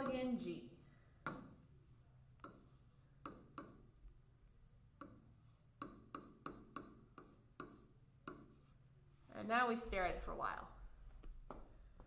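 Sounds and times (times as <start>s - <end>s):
stylus tapping on tablet screen: 1.2s - 1.6s, 2.4s - 3.9s, 5.0s - 8.6s.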